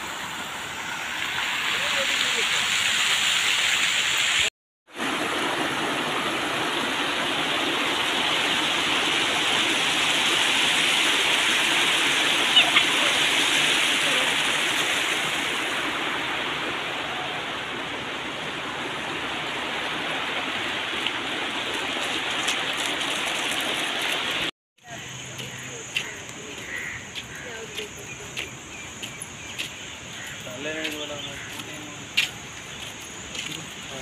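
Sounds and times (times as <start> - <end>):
water rushing down stone cascade: 0.0 - 24.5.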